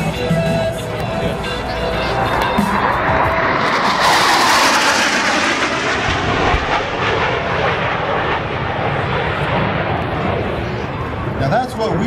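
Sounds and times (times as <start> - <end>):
jets flying past: 1.3 - 12.0.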